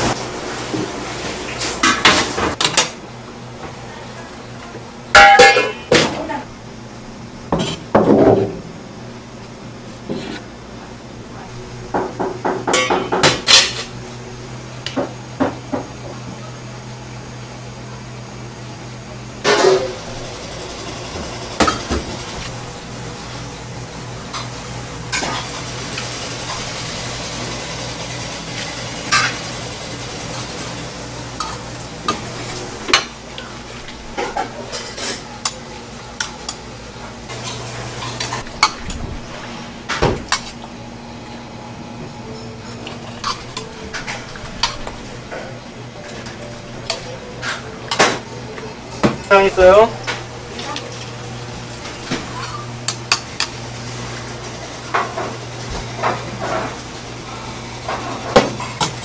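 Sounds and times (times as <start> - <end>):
utensils clinking against bowls: 5.2 - 6.3, 34.2 - 36.6, 42.3 - 51.1.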